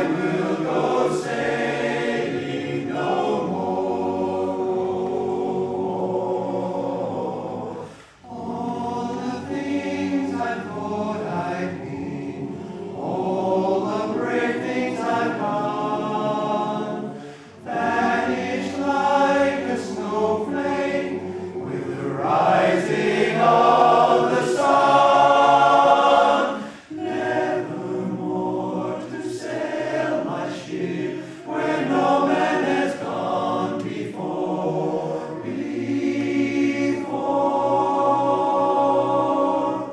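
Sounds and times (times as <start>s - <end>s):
men's chorus singing a cappella: 0.0s - 39.9s.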